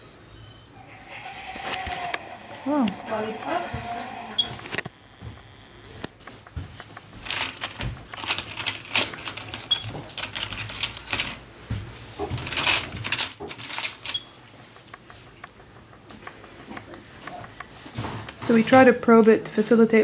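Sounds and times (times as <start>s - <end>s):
rustling and clicking from handling: 6.0s - 19.4s.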